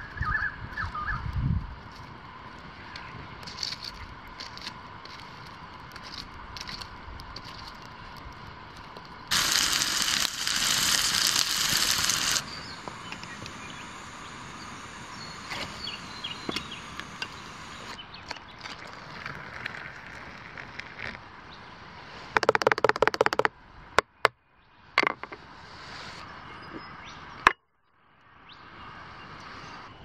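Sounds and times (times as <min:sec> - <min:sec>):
fire crackling: 0:01.6 - 0:22.4
metal pot on coals: 0:03.4 - 0:21.3
loud hiss: 0:08.0 - 0:18.0, 0:25.5 - 0:26.4
hot water poured into mug: 0:09.3 - 0:18.0, 0:18.6 - 0:21.2.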